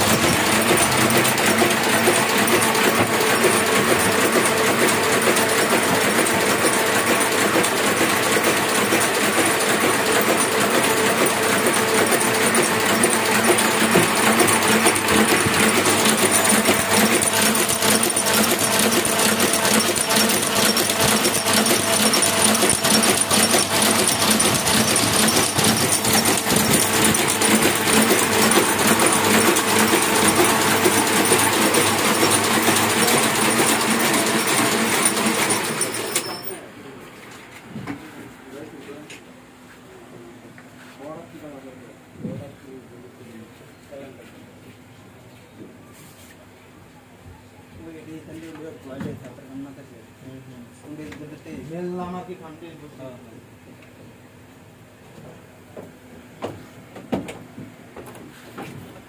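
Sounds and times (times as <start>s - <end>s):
printing press mechanical clatter: 0.0s - 36.7s.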